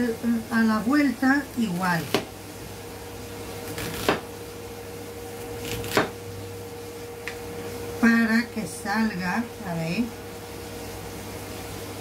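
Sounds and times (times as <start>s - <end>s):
steady low hum: 0.0s - 12.0s
cleaver chopping onion on board: 2.0s - 2.3s, 3.7s - 4.3s, 5.6s - 6.2s.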